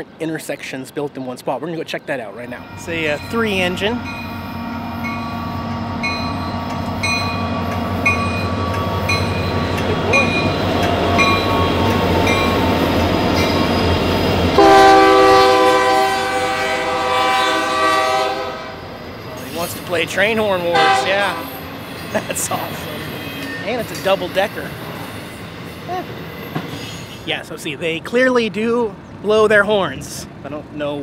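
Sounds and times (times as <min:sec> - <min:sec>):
locomotive engine rumble: 0:02.4 - 0:30.8
bell ringing: 0:02.5 - 0:12.8
locomotive air horn chord: 0:02.6 - 0:08.6, 0:14.6 - 0:18.9, 0:20.7 - 0:21.6.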